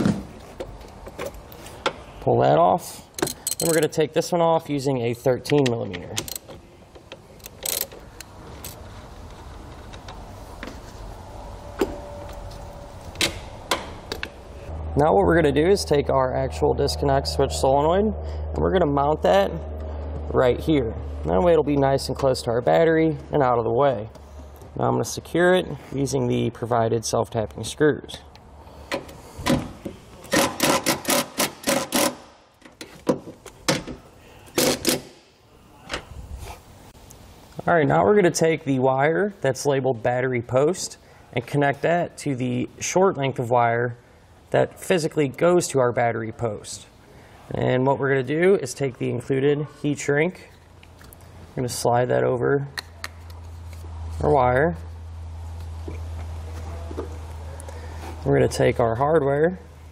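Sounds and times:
ratchet wrench clicking: 3.2 - 3.8, 6.2 - 6.5, 7.4 - 8.8
impact driver driving screws: 30.3 - 32.2, 34.6 - 35.1.

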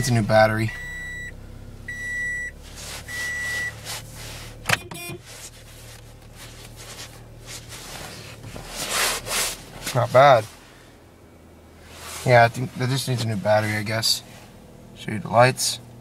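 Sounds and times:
dashboard warning chime beeping: 0.0 - 3.8, 4.6 - 5.3
car engine idling: 0.0 - 16.0.

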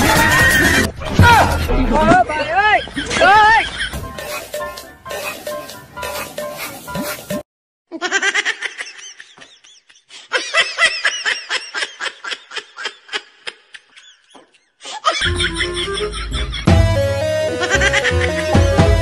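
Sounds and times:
background music: 3.4 - 7.4, 15.2 - 19.0
high-pitched giggles: 7.9 - 16.7.

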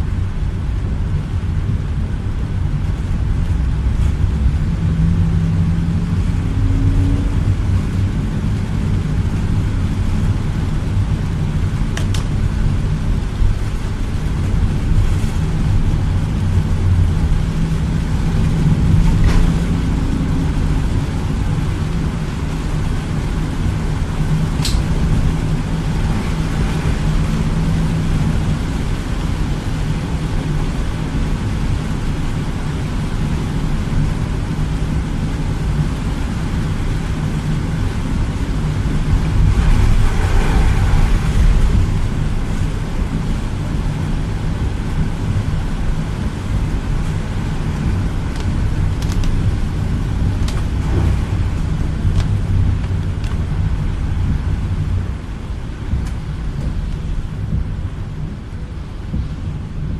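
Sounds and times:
engine and tyre rumble: 0.0 - 59.9
hiss of spray from wet road: 38.6 - 43.3.

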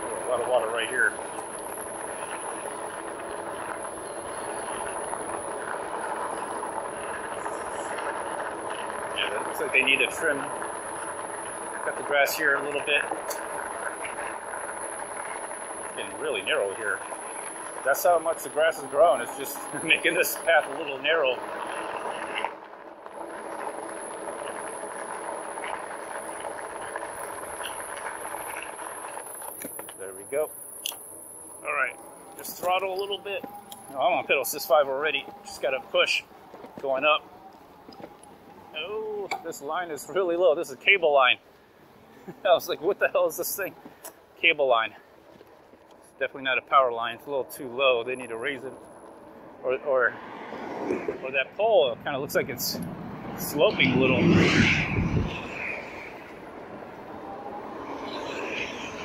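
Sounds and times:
bike tyres rolling: 0.0 - 59.0
thin high tone: 30.0 - 37.4
wind noise: 50.2 - 59.0.

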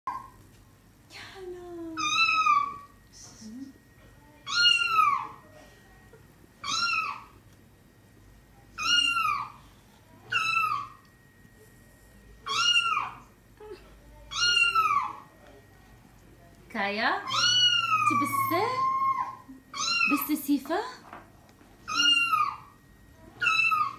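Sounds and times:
kitten meowing: 6.6 - 7.3, 8.8 - 9.5, 12.5 - 13.2, 14.3 - 15.2, 17.3 - 20.2, 21.9 - 22.6, 23.4 - 23.9.

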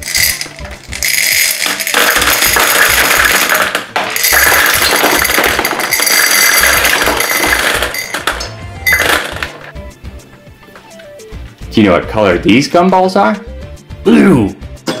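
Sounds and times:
candy balls clattering on glass: 0.0 - 9.7.

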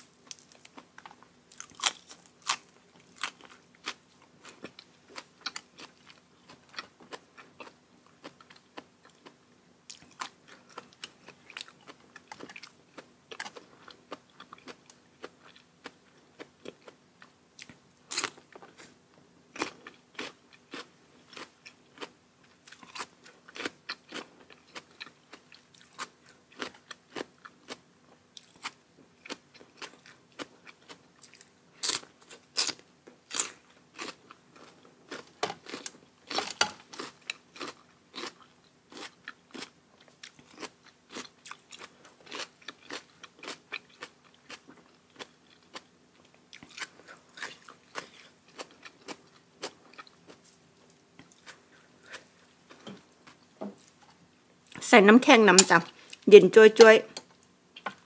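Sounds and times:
person chewing with crunches: 0.0 - 54.8, 55.6 - 58.0
faint steady hum: 0.0 - 58.0.

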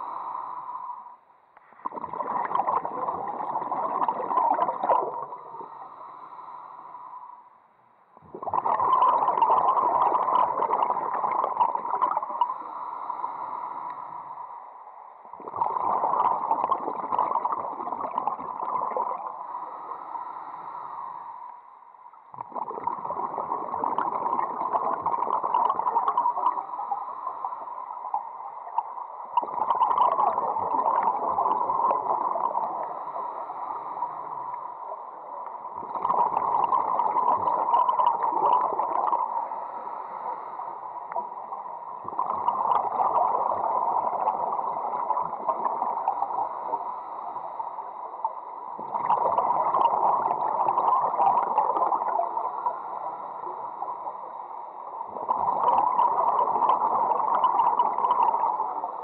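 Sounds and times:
underwater bubbling from diver: 1.7 - 7.1, 8.2 - 14.5, 15.2 - 59.0.

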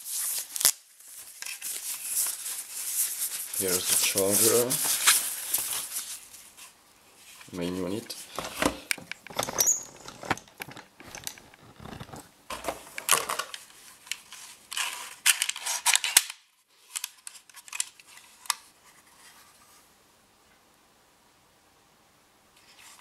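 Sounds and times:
rustling cardboard box: 8.2 - 13.2.

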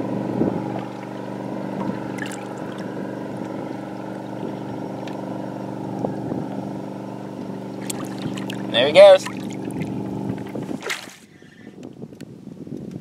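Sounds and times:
boat motor humming: 0.0 - 11.8
light water splashes: 0.7 - 6.7, 7.4 - 11.3.

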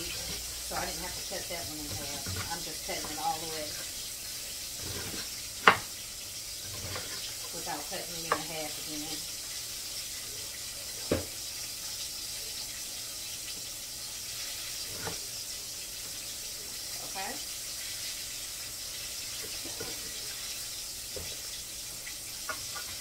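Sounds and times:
knife chopping on wooden board: 4.8 - 5.9.

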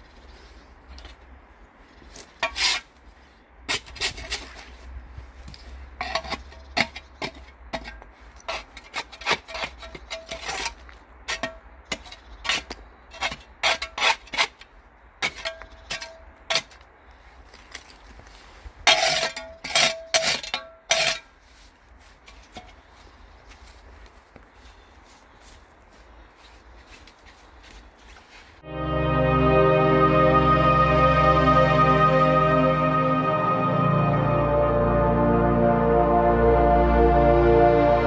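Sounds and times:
trowel scraping stone: 2.3 - 2.9, 3.7 - 4.7, 6.0 - 16.8, 18.8 - 21.4.

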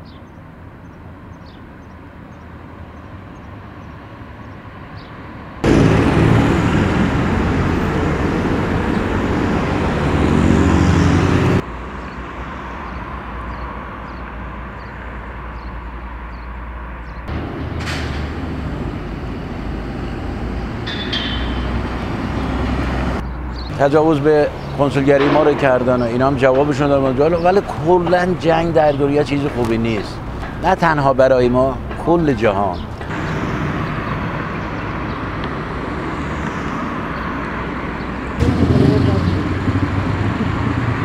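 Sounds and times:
vehicles passing: 0.0 - 41.0
heavy low engine rumble: 5.6 - 11.7, 17.3 - 41.0.

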